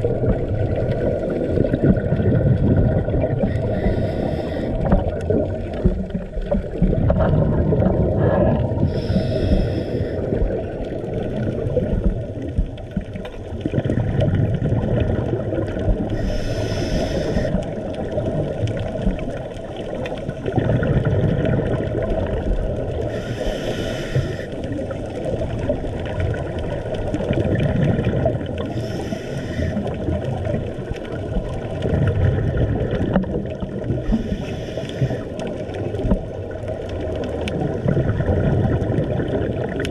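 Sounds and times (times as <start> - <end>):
muffled underwater rumble: 0.0 - 39.9
scuba regulator breathing: 3.4 - 5.3, 8.1 - 10.7, 16.1 - 17.7, 23.0 - 24.8, 28.6 - 30.0, 34.0 - 35.5.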